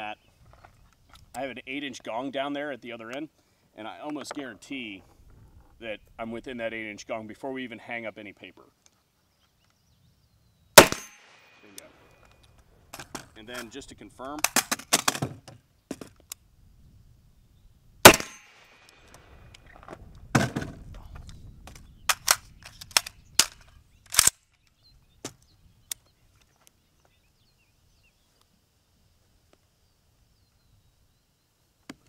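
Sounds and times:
rifle shot with ringing tail: 10.8s - 12.0s, 18.0s - 18.9s
quieter bang: 10.8s - 12.1s, 18.0s - 19.4s
sharp metallic clicks: 10.8s - 13.7s, 22.1s - 24.5s.

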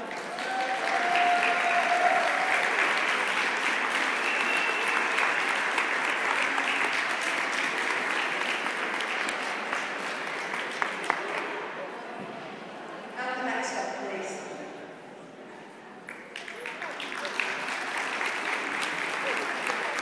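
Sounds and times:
audience applauding: 0.0s - 11.7s, 16.1s - 20.0s.

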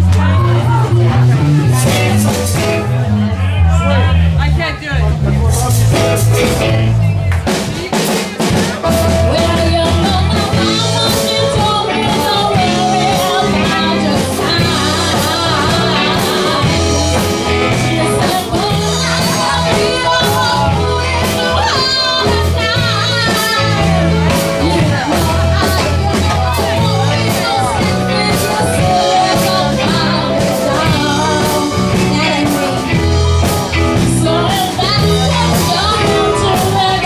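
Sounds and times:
live rock band playing: 0.0s - 37.0s
person singing: 8.7s - 37.0s.

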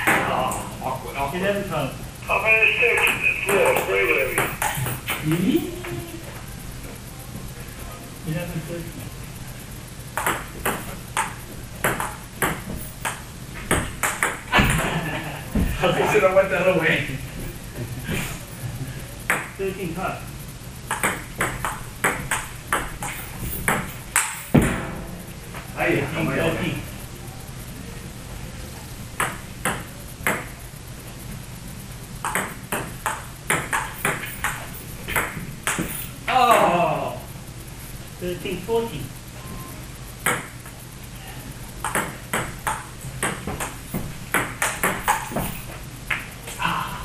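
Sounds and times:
table tennis ball hits: 0.0s - 0.6s, 3.1s - 5.5s, 10.2s - 14.9s, 19.3s - 19.6s, 20.9s - 25.1s, 29.2s - 30.6s, 32.2s - 36.7s, 40.2s - 40.5s, 41.8s - 46.3s.

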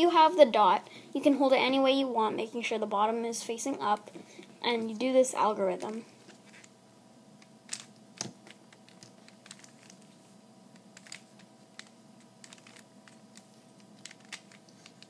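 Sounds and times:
puzzle cube clicking: 7.7s - 10.1s, 10.8s - 15.0s.

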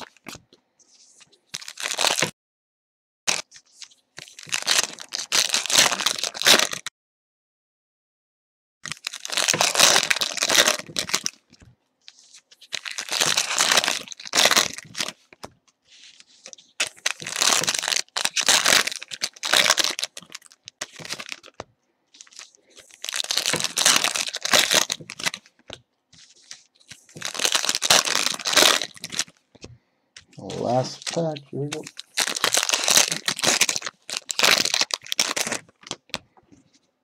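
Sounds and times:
foil wrappers tearing and crinkling: 1.6s - 2.3s, 4.2s - 6.9s, 8.8s - 11.4s, 12.1s - 21.6s, 22.2s - 29.4s, 30.4s - 36.1s.

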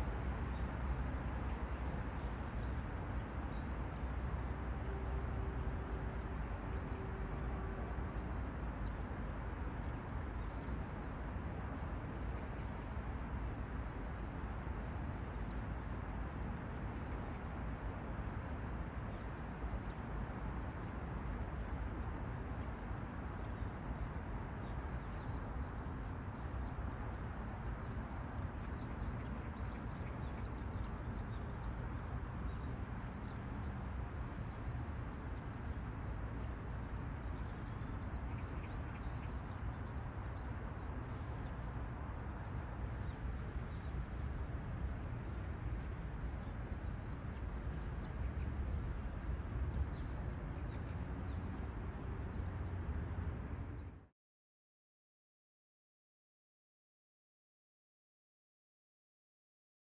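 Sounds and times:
low outdoor rumble: 0.0s - 54.1s
small birds chirping: 20.8s - 54.1s.

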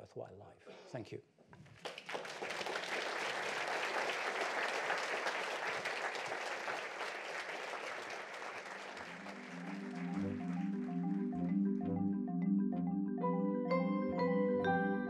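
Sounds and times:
audience applauding: 1.6s - 11.6s
mallet percussion music: 9.1s - 15.0s.

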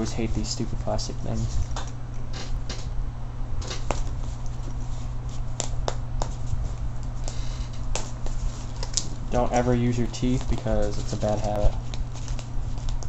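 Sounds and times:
steady low hum: 0.0s - 13.0s
plastic packaging crinkling: 7.0s - 13.0s.

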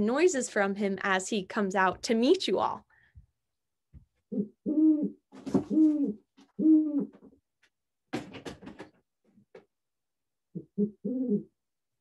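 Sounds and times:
owl hooting: 4.3s - 7.2s, 10.6s - 11.6s.

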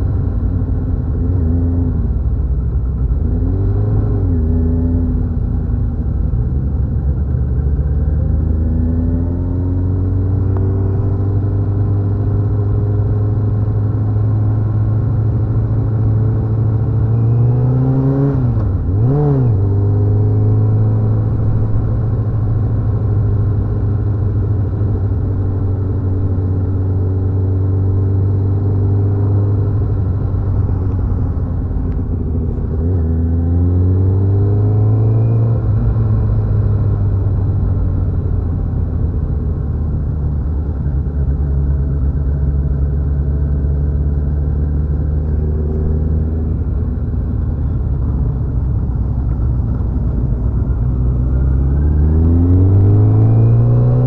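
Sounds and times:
motorcycle engine revving: 41.9s - 54.0s.

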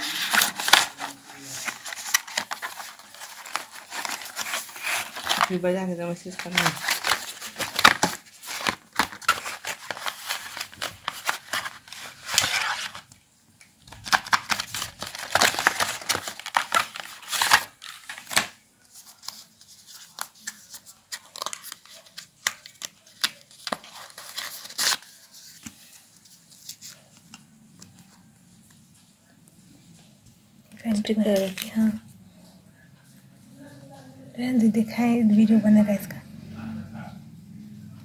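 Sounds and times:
packaging rustling and crinkling: 0.0s - 13.2s, 13.8s - 28.2s.

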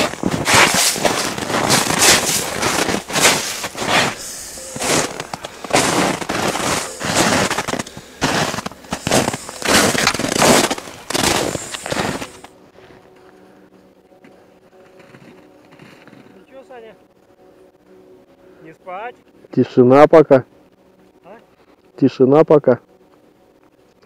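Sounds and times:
jacket fabric rubbing on microphone: 0.0s - 12.5s.

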